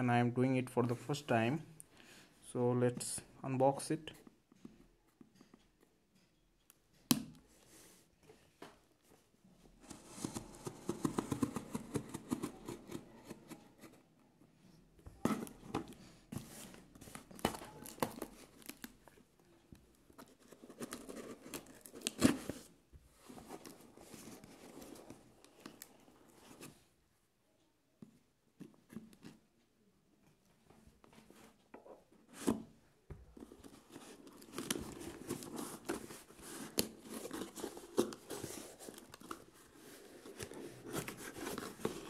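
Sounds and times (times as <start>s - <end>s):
cardboard tearing and crinkling: 33.9s - 42.0s.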